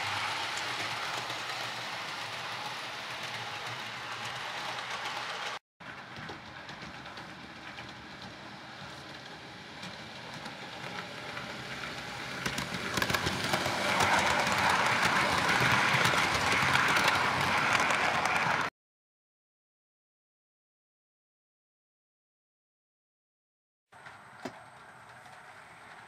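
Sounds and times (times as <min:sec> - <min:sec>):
model train whirring on track: 0:00.0 - 0:18.7, 0:24.0 - 0:26.0
clicking over rail joints: 0:24.0 - 0:26.0.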